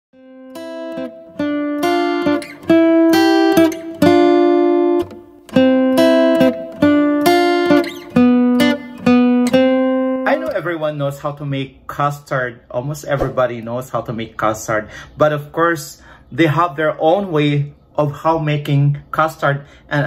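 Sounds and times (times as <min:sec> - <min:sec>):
acoustic guitar chords ringing: 0:00.2 - 0:10.7.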